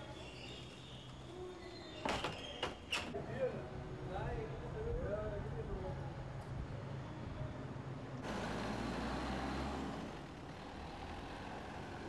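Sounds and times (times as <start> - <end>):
truck engine humming: 8.2 - 12.0.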